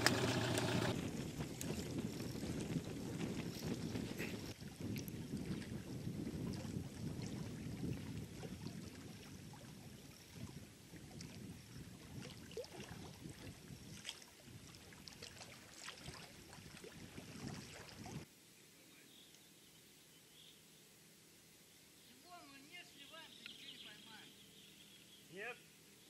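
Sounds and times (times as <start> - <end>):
quiet hiss: 18.3 - 26.0.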